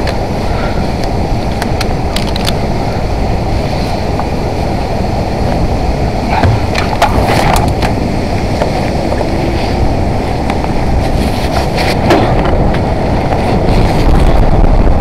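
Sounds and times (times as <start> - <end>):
wind buffeting microphone: 0.0 - 15.0
clicks and knocks from rigging gear: 1.0 - 2.6, 6.3 - 8.0.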